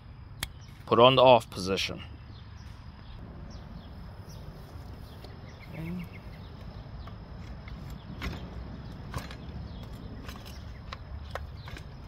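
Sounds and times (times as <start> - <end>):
faint bird chirps: 1.9 - 7.2.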